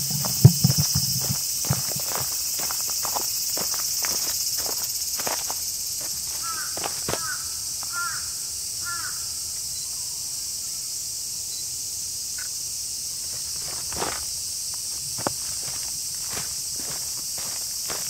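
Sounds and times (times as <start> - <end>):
footsteps on dry leaves: 0.0 - 7.4, 13.2 - 18.0
insects droning: 0.0 - 18.0
bird calling: 6.3 - 9.2.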